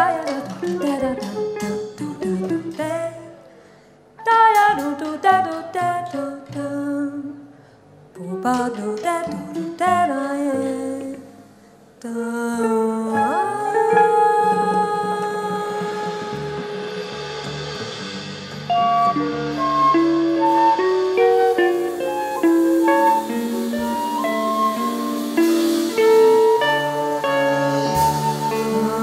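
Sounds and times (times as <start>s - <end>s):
jazz group playing: 0.0s - 3.3s, 12.7s - 29.0s.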